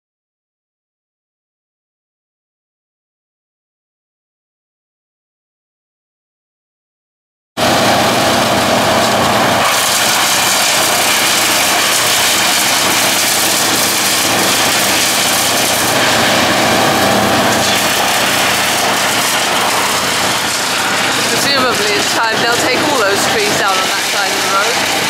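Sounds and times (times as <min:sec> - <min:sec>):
wood chipper engine running: 0:07.6 - 0:25.0.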